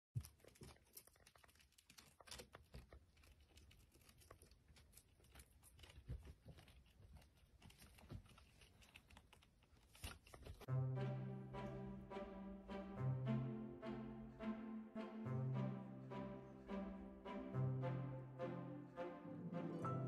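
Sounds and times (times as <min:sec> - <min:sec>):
hamster claws clicking and scratching: 0:00.2 - 0:10.7.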